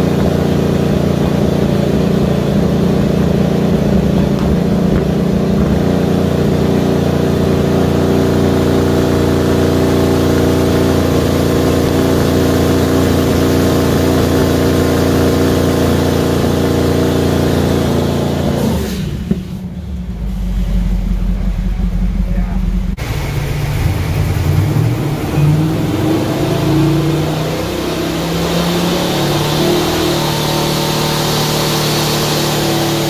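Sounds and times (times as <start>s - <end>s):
car engine under load: 0.0s - 33.0s.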